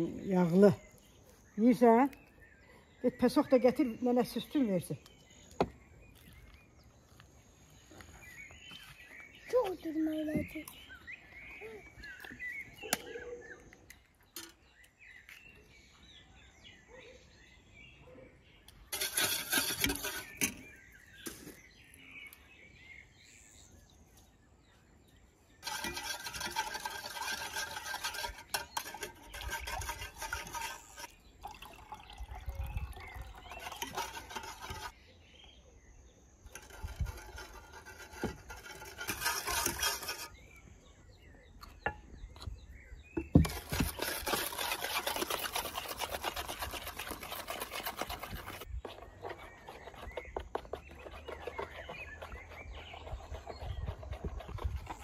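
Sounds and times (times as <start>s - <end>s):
metal spoon scraping metal pot: 18.8s - 21.6s, 25.6s - 31.3s, 33.0s - 35.0s, 36.4s - 40.6s, 43.2s - 55.0s.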